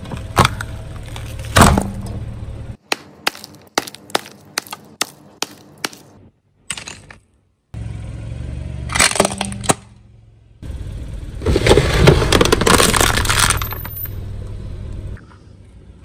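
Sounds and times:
tyre crushing brittle objects: 0:00.0 - 0:02.1, 0:02.8 - 0:06.1, 0:11.5 - 0:14.0
car engine humming: 0:00.0 - 0:06.4, 0:07.7 - 0:16.0.

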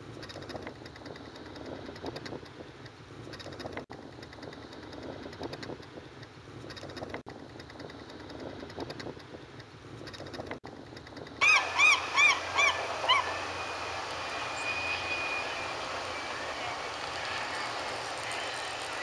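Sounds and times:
floatplane engine and propeller: 0:00.0 - 0:19.0
bird calling: 0:11.4 - 0:19.0.

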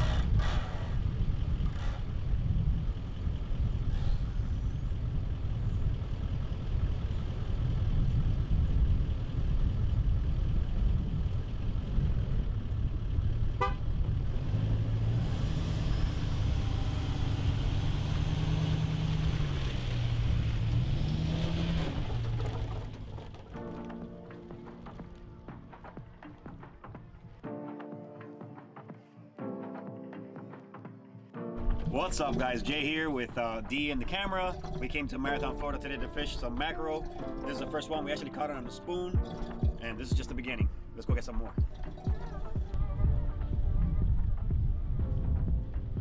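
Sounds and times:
pickup truck engine running: 0:00.0 - 0:26.4.

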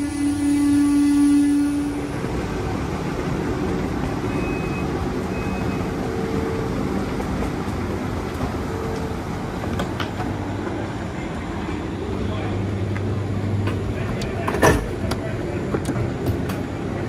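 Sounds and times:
train equipment humming: 0:00.0 - 0:17.0
short high beeps: 0:04.3 - 0:05.9.

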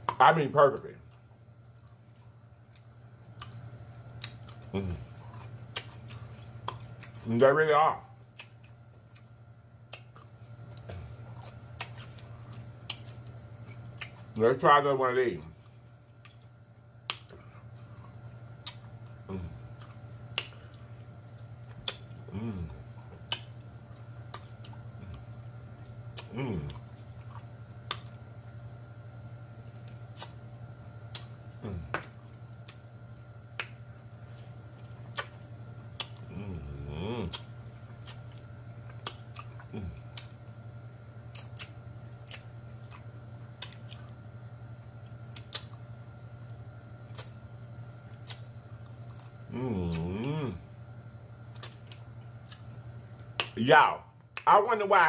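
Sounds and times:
chewing and mouth noises: 0:00.0 - 0:07.4, 0:08.2 - 0:14.6, 0:15.5 - 0:28.4, 0:29.6 - 0:50.6, 0:51.4 - 0:53.6
steady low hum: 0:00.0 - 0:55.0
low voice hum: 0:04.2 - 0:08.5, 0:10.7 - 0:13.4, 0:17.2 - 0:27.7, 0:31.1 - 0:32.9, 0:33.5 - 0:40.6, 0:47.1 - 0:51.8
wet mouth smacks and clicks: 0:21.8 - 0:22.1, 0:30.1 - 0:30.4, 0:31.1 - 0:31.4, 0:35.1 - 0:36.3, 0:39.0 - 0:40.3, 0:41.3 - 0:44.0, 0:45.3 - 0:45.8, 0:47.1 - 0:47.4, 0:48.2 - 0:48.5, 0:51.5 - 0:52.7, 0:53.4 - 0:53.6.

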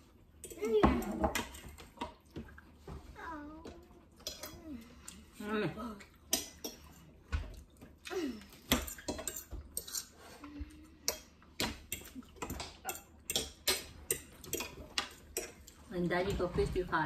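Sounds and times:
forks clinking on plates: 0:08.7 - 0:10.2, 0:11.0 - 0:15.8.

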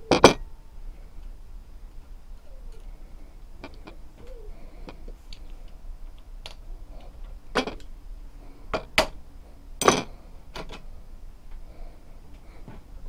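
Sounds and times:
metal parts clicking and knocking: 0:07.5 - 0:07.9, 0:09.8 - 0:10.8.

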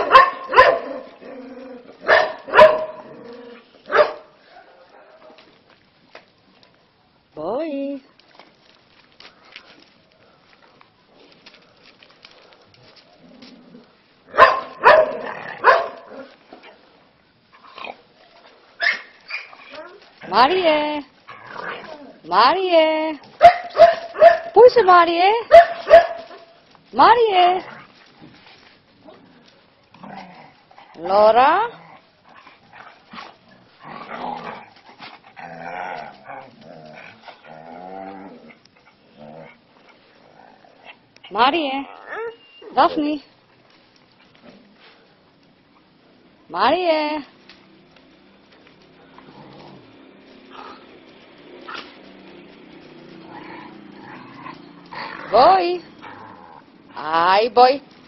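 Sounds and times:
dog barking: 0:00.0 - 0:01.1, 0:02.0 - 0:03.0, 0:03.9 - 0:04.8, 0:14.3 - 0:16.1, 0:23.4 - 0:24.6, 0:25.5 - 0:26.5
dogs growling: 0:00.8 - 0:02.0, 0:21.3 - 0:22.3, 0:29.0 - 0:41.2, 0:48.8 - 0:57.0.

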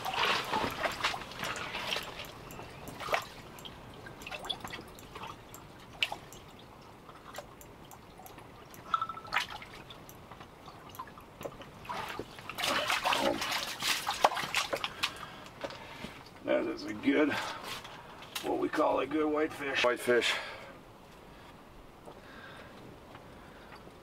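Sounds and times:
water splashing and dripping: 0:00.0 - 0:15.3.

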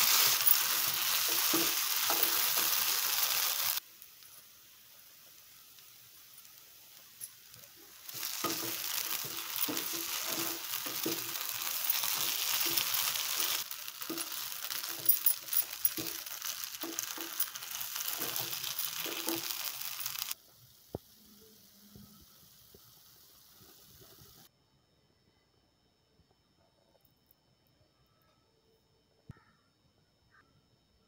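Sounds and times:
food sizzling in hot fat: 0:00.0 - 0:24.5
spatula scraping and knocking pan: 0:08.1 - 0:20.2.

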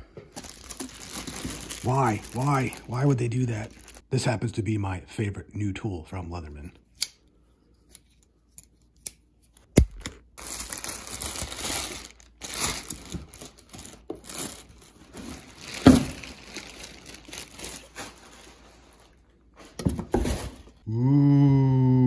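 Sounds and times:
plastic bag crinkling and tearing: 0:00.3 - 0:04.0, 0:09.8 - 0:19.4.

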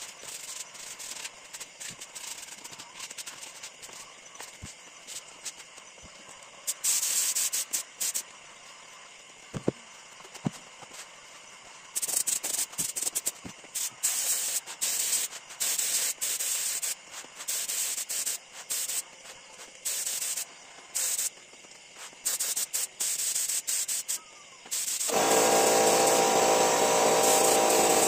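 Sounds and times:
air spray gun hissing in bursts: 0:00.0 - 0:04.0, 0:06.6 - 0:08.3, 0:11.8 - 0:28.0.

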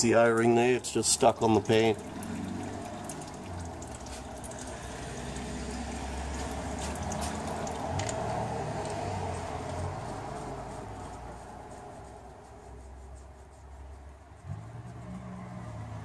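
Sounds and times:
fluid draining into container: 0:00.2 - 0:09.6.

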